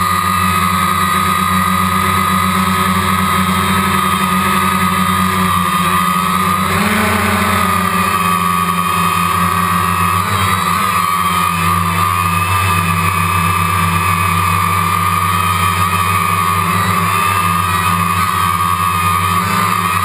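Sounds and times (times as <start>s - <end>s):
drone motors whining: 3.6s - 12.4s.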